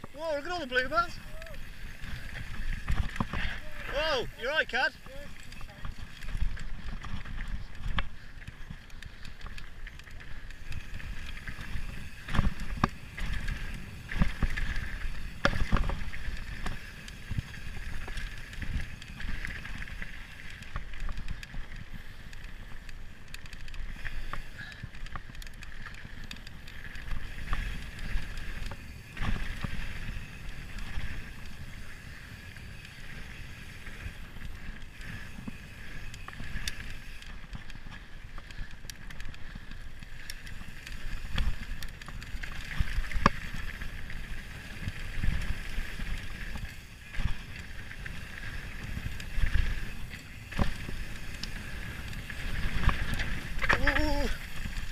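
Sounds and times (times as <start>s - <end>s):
bike parts rattling: 0.0s - 54.9s
bike tyres rumbling on dirt: 0.0s - 54.9s.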